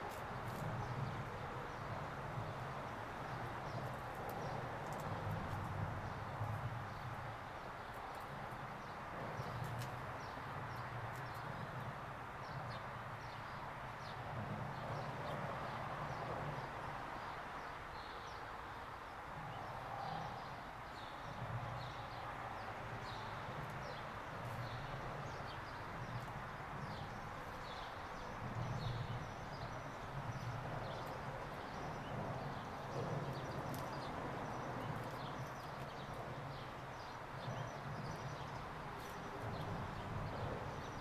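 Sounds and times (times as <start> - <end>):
small birds chirping: 19.6 - 41.0.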